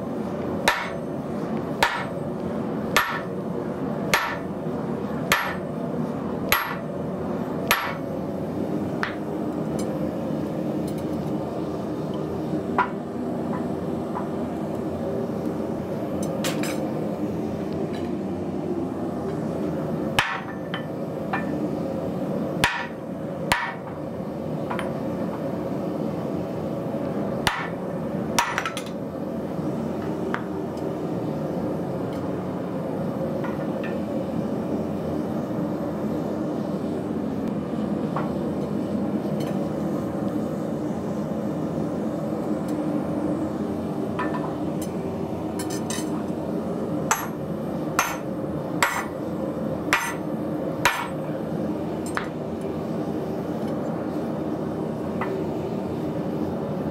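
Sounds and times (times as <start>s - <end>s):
hammer striking hot steel: 0.6s - 1.2s, 1.8s - 2.2s, 2.9s - 3.4s, 4.1s - 4.5s, 5.2s - 5.7s, 6.5s - 6.9s, 7.6s - 8.0s, 20.2s - 21.6s, 22.6s - 24.0s, 27.4s - 27.8s, 28.4s - 28.9s, 47.1s - 47.4s, 48.0s - 49.2s, 49.9s - 51.2s.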